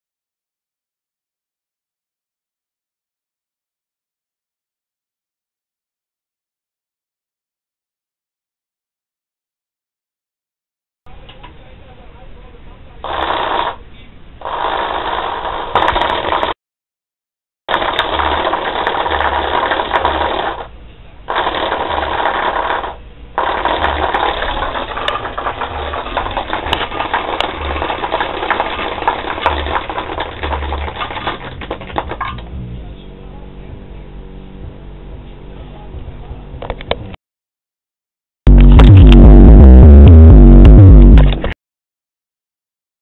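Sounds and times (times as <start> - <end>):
low bass tone pulsing: 32.3 - 36.6, 38.5 - 41.5.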